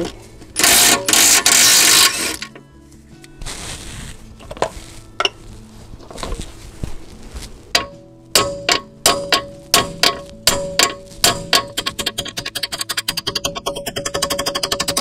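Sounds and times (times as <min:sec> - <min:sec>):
metallic ratchet clicks: 0:00.6 - 0:02.6, 0:08.4 - 0:15.0.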